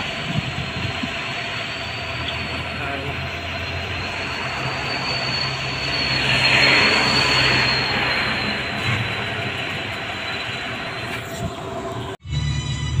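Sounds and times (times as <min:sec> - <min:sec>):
high whine: 0:00.0 - 0:13.0
outdoor rushing noise: 0:00.0 - 0:13.0.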